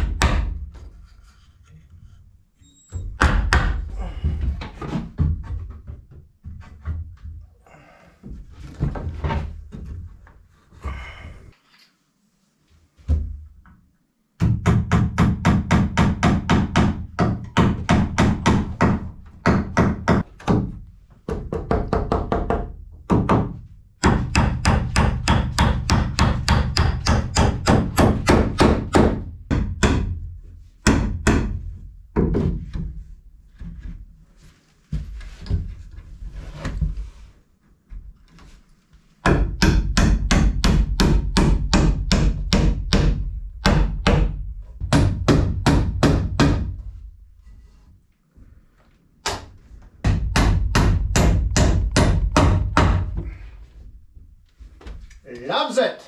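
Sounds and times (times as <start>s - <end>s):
hammer driving nails into wood: 14.4s - 30.2s, 39.2s - 46.7s, 49.2s - 53.4s.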